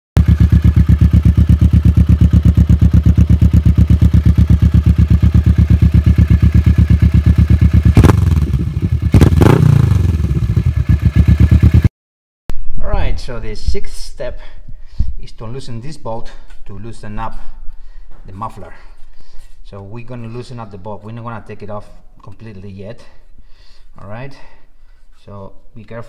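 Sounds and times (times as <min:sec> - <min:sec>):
motorcycle engine idling and revving: 0:00.2 - 0:11.9.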